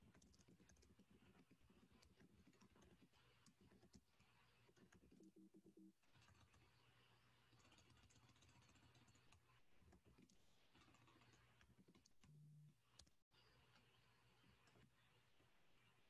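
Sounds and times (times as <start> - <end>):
keyboard and mouse clicks: 0.0 - 6.8, 7.5 - 13.2.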